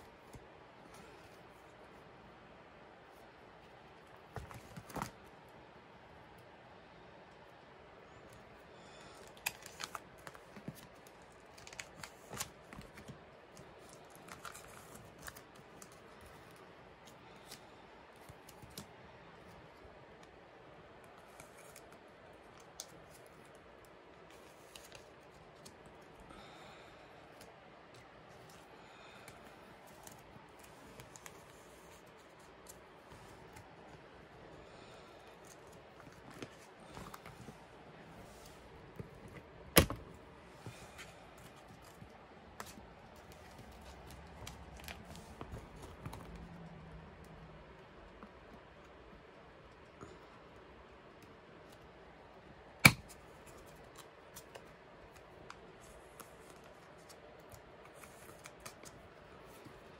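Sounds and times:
plastic binder pages clicking: 4.0s - 5.3s, 9.1s - 19.6s, 21.0s - 26.1s, 35.2s - 46.8s, 52.8s - 59.9s
soft plastic rustling: 8.0s - 52.4s, 53.1s - 59.9s.

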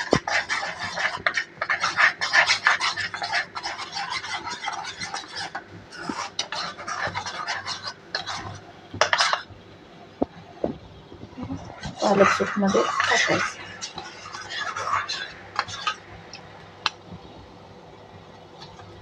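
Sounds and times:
metal spoon stirring in bowl: 0.0s - 9.5s, 11.5s - 17.0s.

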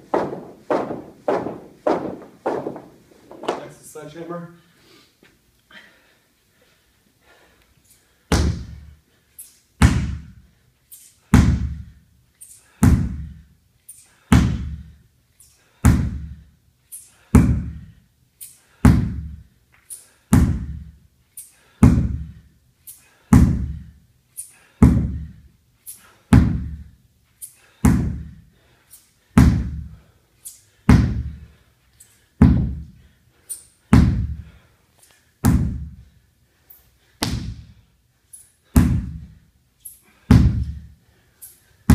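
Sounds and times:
sledgehammer thudding on rubber tire: 8.3s - 8.8s, 9.8s - 10.4s, 11.3s - 11.8s, 12.8s - 13.3s, 14.3s - 14.8s, 15.8s - 16.4s, 17.4s - 17.8s, 18.8s - 19.4s, 20.3s - 20.8s, 21.8s - 22.3s, 23.3s - 23.8s, 24.8s - 25.3s, 26.3s - 26.8s, 27.8s - 28.4s, 29.4s - 29.9s, 30.9s - 31.4s, 32.4s - 32.8s, 33.9s - 34.5s, 35.4s - 36.0s, 37.2s - 37.6s, 38.8s - 39.3s, 40.3s - 40.8s.

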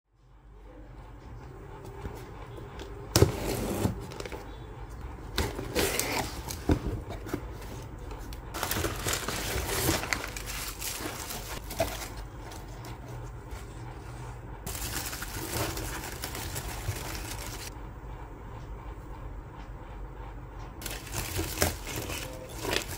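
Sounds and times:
packing paper rustling and crinkling: 8.5s - 13.1s, 14.7s - 17.7s, 20.8s - 22.9s.

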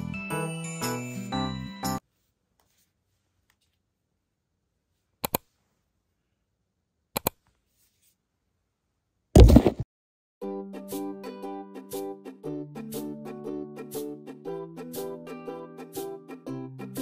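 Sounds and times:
background music: 0.0s - 2.0s, 10.4s - 17.0s
rustling of pages: 2.1s - 3.8s.

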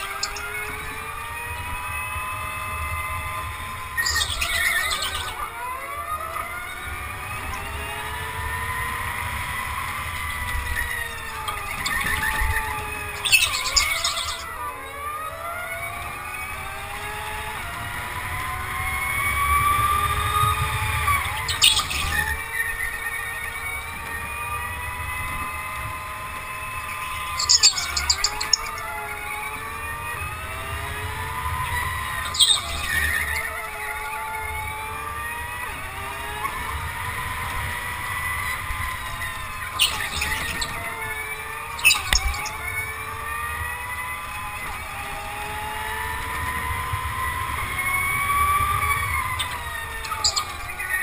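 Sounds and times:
electric go-kart motor whining: 0.0s - 51.0s
other karts whining: 0.0s - 51.0s
tyre squeal: 10.8s - 14.5s, 31.7s - 33.6s, 38.4s - 43.0s, 47.9s - 51.0s.

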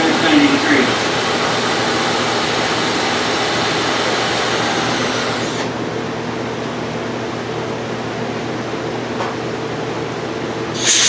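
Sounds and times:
milling machine hum: 0.0s - 9.0s
end mill cutting hiss: 10.8s - 11.0s.

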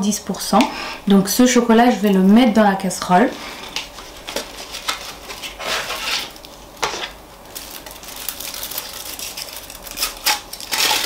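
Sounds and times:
foil wrapper rustling and crinkling: 3.6s - 11.0s.

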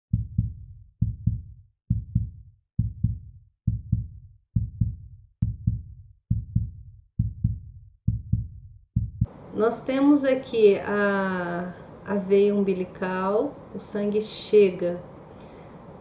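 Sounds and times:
heartbeat thumps: 0.1s - 9.3s.

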